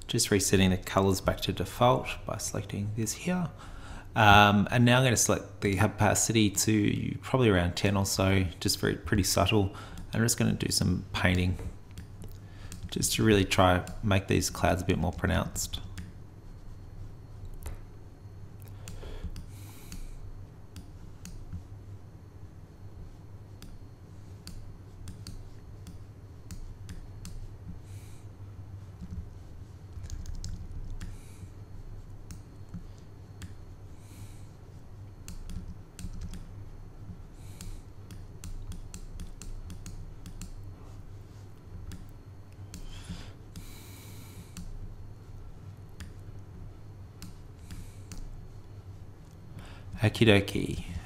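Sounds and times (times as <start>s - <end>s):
keyboard and mouse clicking: 24.4s - 27.4s, 30.0s - 31.2s, 35.2s - 36.5s, 37.5s - 40.6s, 46.0s - 46.2s.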